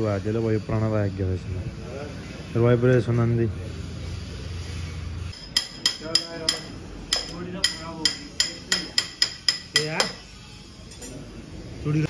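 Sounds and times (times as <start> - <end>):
hammer striking metal: 5.3 - 10.3.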